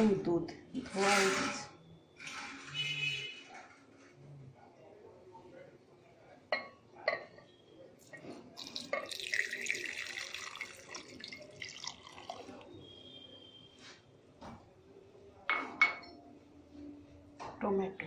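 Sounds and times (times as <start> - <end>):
milk pouring and splashing: 8.6 - 12.7.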